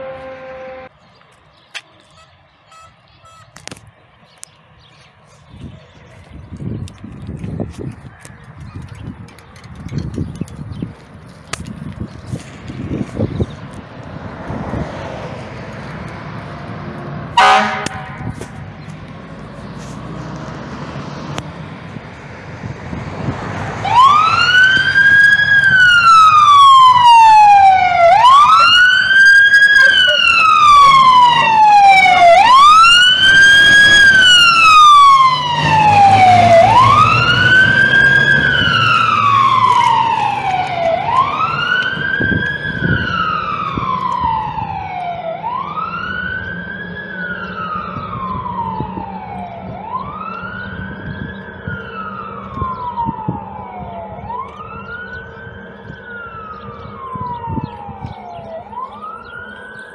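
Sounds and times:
fire engine siren wailing: 0:00.0 - 0:00.9, 0:14.2 - 0:59.9.

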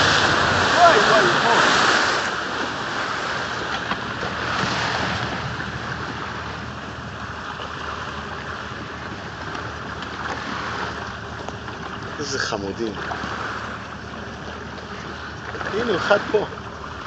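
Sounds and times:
wind on microphone: 0:00.0 - 0:11.3
boat engine idling: 0:00.0 - 0:17.0
water washing around boat: 0:00.0 - 0:17.0.

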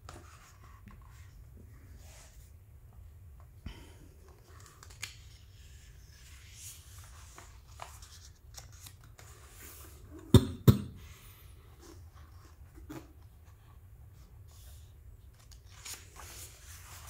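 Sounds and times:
book page turning: 0:04.3 - 0:10.1, 0:14.5 - 0:17.0
sharp knocks: 0:10.4 - 0:11.0.

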